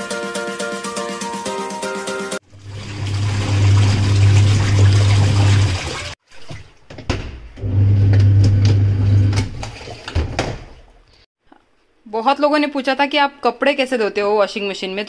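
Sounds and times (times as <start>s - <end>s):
washing machine motor humming: 2.4s - 6.2s, 7.5s - 10.4s
water sloshing: 2.4s - 7.1s, 9.3s - 11.2s.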